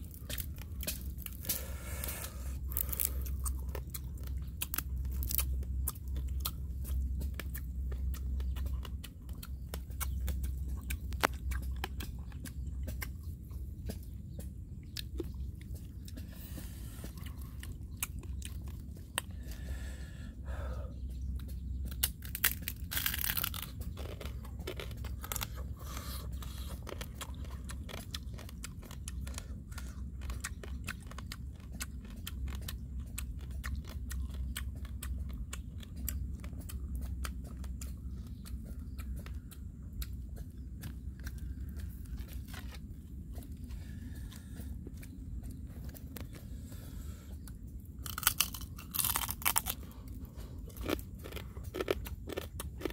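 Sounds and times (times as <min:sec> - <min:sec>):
crunching and chewing: 0:00.0 - 0:52.9
steady low hum: 0:00.0 - 0:52.9
crab shell cracking: 0:22.0 - 0:25.6.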